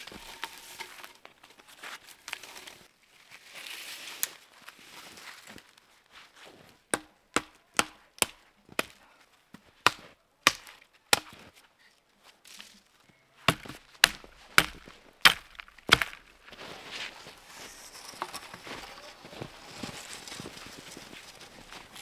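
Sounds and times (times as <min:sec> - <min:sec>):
hatchet chopping wood: 0:06.9 - 0:09.0, 0:09.8 - 0:11.4, 0:13.5 - 0:16.3.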